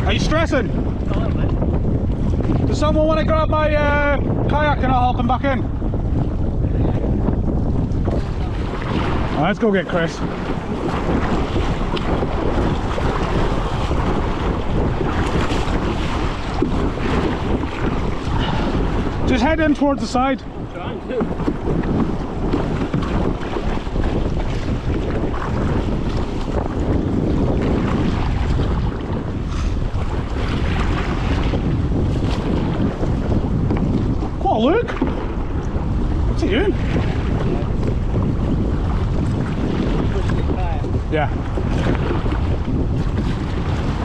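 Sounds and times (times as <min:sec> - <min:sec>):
waves splashing against kayak: 0:00.0 - 0:44.0
wind buffeting microphone: 0:00.0 - 0:44.0.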